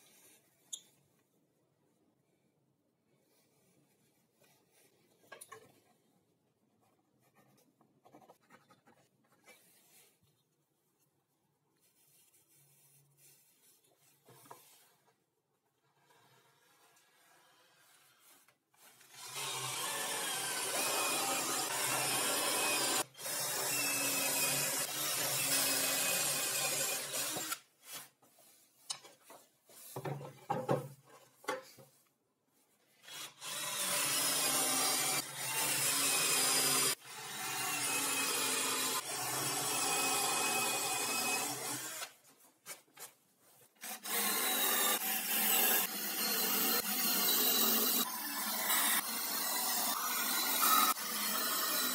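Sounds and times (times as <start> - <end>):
cordless drill boring into wood: 19.2 - 27.6, 33.0 - 42.1, 43.8 - 51.9.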